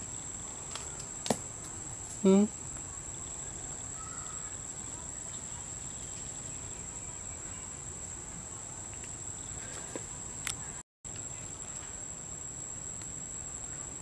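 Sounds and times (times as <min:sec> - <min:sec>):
insects droning: 0:00.0 - 0:14.0.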